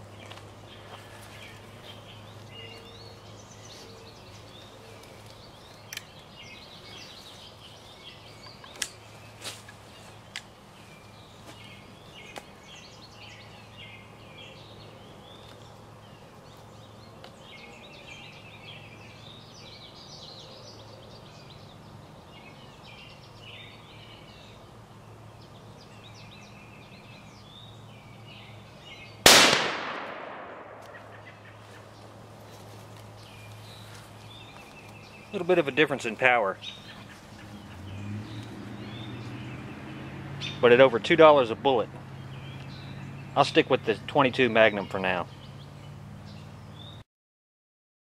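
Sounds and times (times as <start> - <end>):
birds chirping: 0.0 - 47.0
rifle shot: 29.2 - 31.1.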